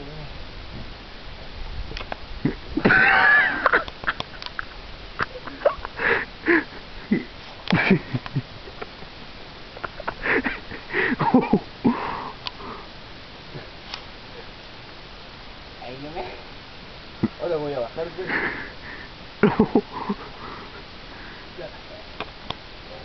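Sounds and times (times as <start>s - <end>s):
person breathing hard: 5.9s - 7.3s, 10.2s - 11.2s, 11.8s - 13.0s, 18.3s - 19.2s, 19.8s - 21.6s.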